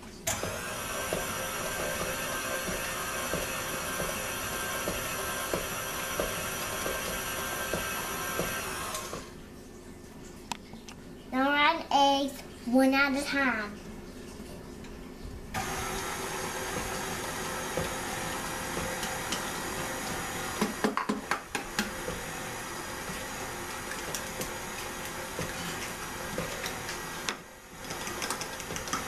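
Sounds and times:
stand mixer motor running: 0:00.3 - 0:09.3, 0:15.6 - 0:29.0.

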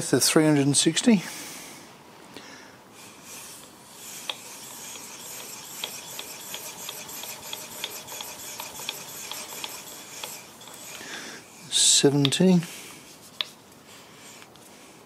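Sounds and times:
handwheel clicking: 0:04.3 - 0:11.0.

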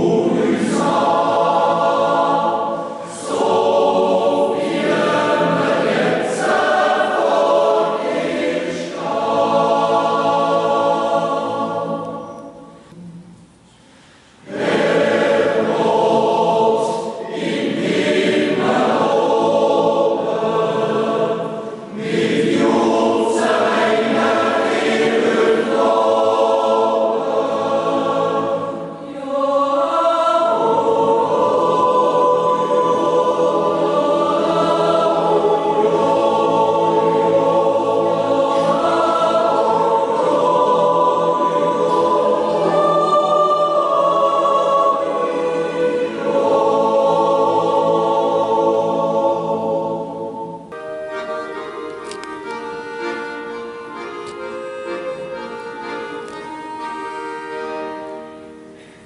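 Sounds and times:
choir yodel singing: 0:00.0 - 0:13.0, 0:14.4 - 0:58.8.

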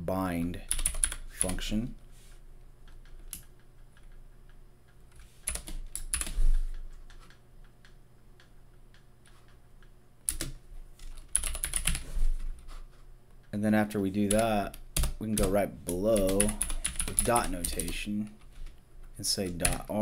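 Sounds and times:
typing on computer keyboard: 0:00.7 - 0:01.6, 0:02.8 - 0:06.4, 0:10.3 - 0:12.0, 0:14.2 - 0:18.4.

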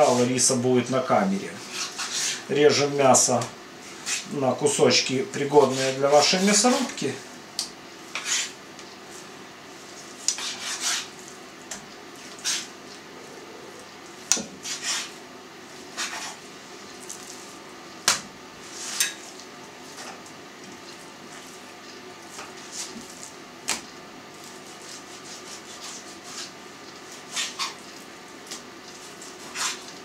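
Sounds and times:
knife scraping: 0:01.6 - 0:02.5, 0:03.8 - 0:04.3, 0:08.1 - 0:08.6, 0:10.1 - 0:11.2, 0:12.2 - 0:12.7, 0:14.6 - 0:15.2, 0:15.9 - 0:16.4, 0:24.4 - 0:27.8, 0:28.5 - 0:30.0.

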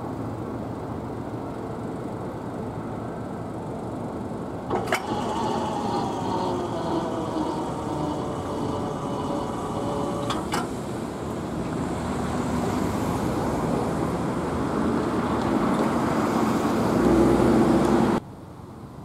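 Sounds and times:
cars driving over tracks: 0:03.8 - 0:18.2.

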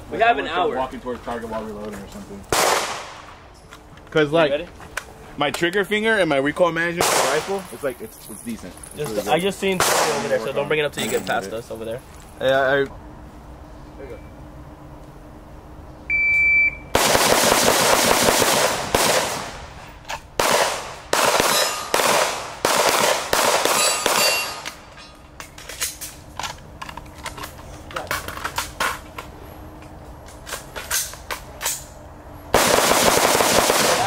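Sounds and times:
rifle and pistol shots: 0:02.5 - 0:03.3, 0:07.0 - 0:07.7, 0:09.8 - 0:10.4, 0:17.0 - 0:19.7, 0:20.4 - 0:24.8, 0:32.5 - 0:34.0
shot timer beep: 0:16.1 - 0:16.9.

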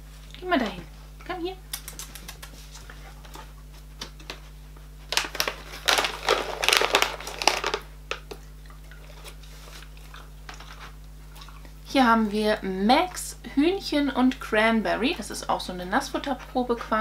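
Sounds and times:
packaging crinkling: 0:05.0 - 0:08.4.

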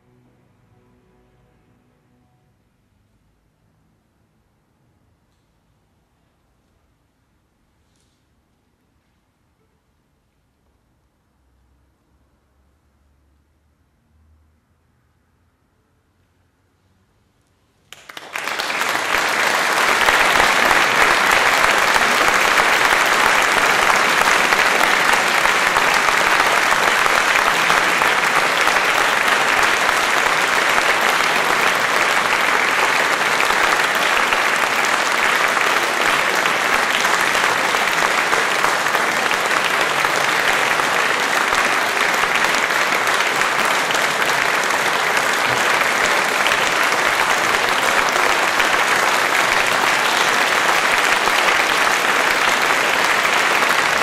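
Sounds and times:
audience applauding: 0:17.9 - 0:54.0.

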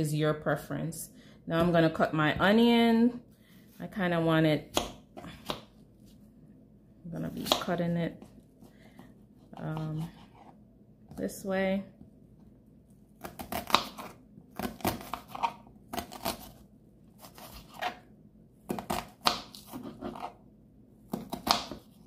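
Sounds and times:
knife slicing onion: 0:13.2 - 0:18.1, 0:18.7 - 0:20.4, 0:21.1 - 0:22.0.

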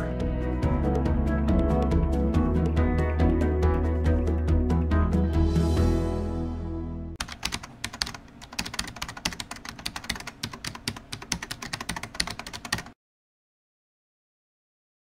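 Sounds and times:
outro music: 0:00.0 - 0:07.2
rapid keyboard typing: 0:07.2 - 0:13.0.

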